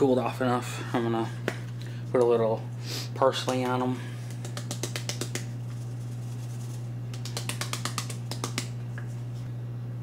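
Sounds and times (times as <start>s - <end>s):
steady low hum: 0.0s - 10.0s
spice shaker rattling: 4.3s - 8.8s.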